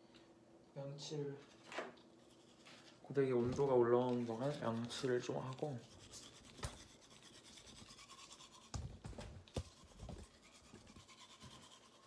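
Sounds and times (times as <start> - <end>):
toothbrush scrubbing teeth: 4.2 - 8.8, 9.6 - 12.0.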